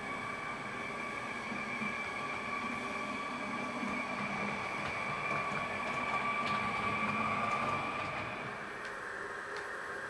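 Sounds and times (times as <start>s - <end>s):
electric train whine from speaker: 0.0s - 10.0s
faint clicks: 8.8s - 9.7s.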